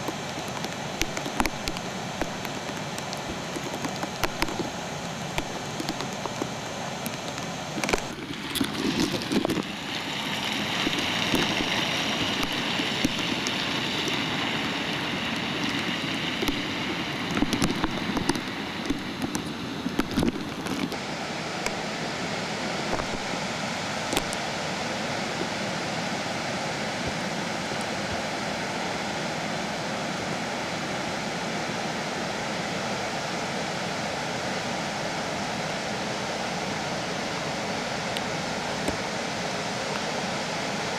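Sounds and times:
floodwater rushing: 0:00.0 - 0:31.0.

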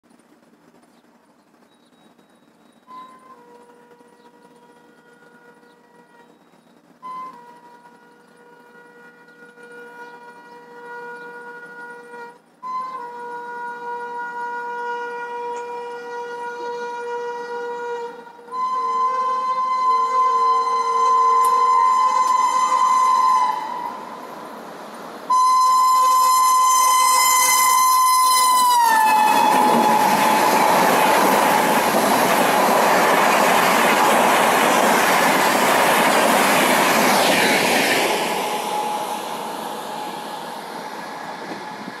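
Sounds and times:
locomotive horn blasts: 0:02.9 - 0:06.4, 0:07.0 - 0:24.2, 0:25.3 - 0:35.1, 0:37.9 - 0:42.0
train coaches rushing and clattering: 0:18.2 - 0:42.0.

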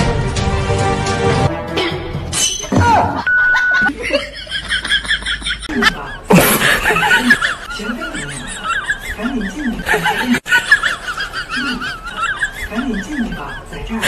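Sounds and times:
steady beep: 0:03.3 - 0:03.9
rapid high-pitched laughter: 0:03.7 - 0:14.0.

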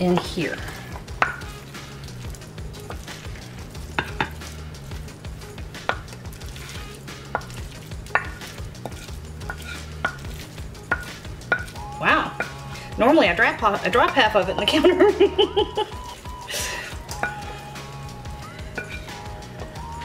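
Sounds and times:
wet mixture sliding and plopping: 0:00.1 - 0:12.9
spatula tapping ceramic bowl: 0:01.0 - 0:01.5, 0:04.0 - 0:04.4, 0:07.3 - 0:12.6, 0:17.1 - 0:17.6, 0:18.6 - 0:19.2.

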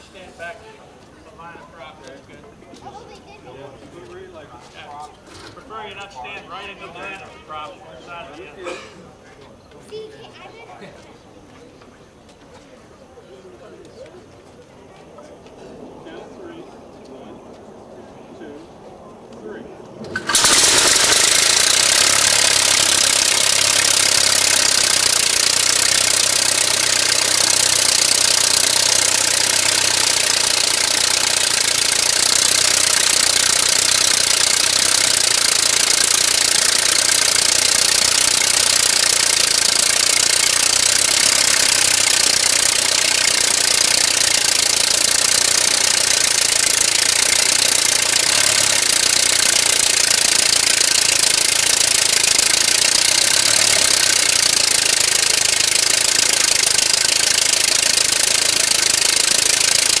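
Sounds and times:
aircraft engine running: 0:15.4 - 1:00.0.

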